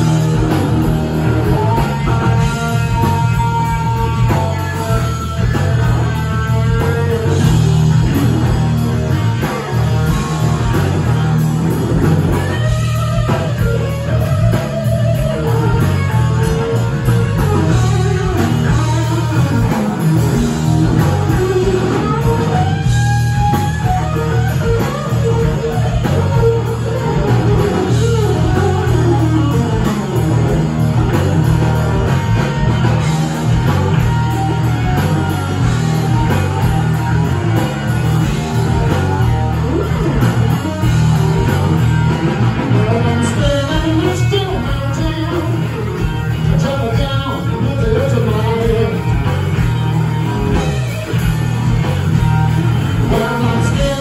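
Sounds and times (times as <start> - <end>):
drum kit: 0.0 - 54.0
electric bass: 0.0 - 54.0
electric guitar lead: 0.0 - 54.0.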